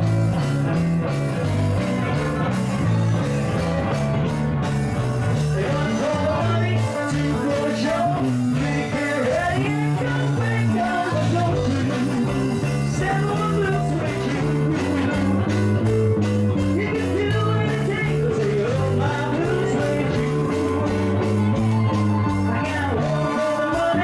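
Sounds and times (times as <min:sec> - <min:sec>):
bass: 0:00.0 - 0:24.0
electric guitar: 0:00.0 - 0:24.0
keyboards: 0:00.0 - 0:24.0
person singing: 0:05.3 - 0:15.8, 0:16.5 - 0:24.0.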